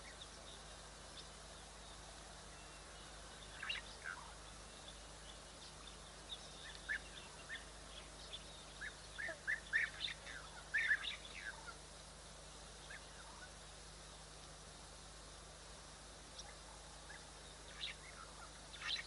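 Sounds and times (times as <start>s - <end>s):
faint steady hiss: 0.0s - 19.0s
high chirping calls: 2.6s - 11.8s.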